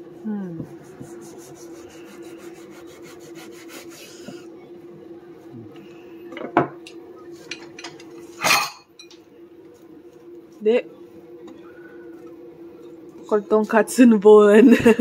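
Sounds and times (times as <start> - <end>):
steady low hum: 0.0 - 15.0
knife sawing through meat: 1.2 - 4.3.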